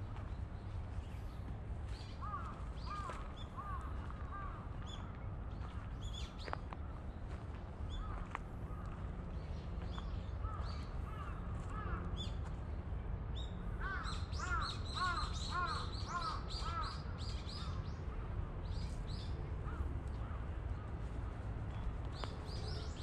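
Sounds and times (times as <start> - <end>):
steady low rumble: 0.0 - 13.8, 17.0 - 23.0
crow cawing: 2.2 - 4.6, 13.8 - 17.0.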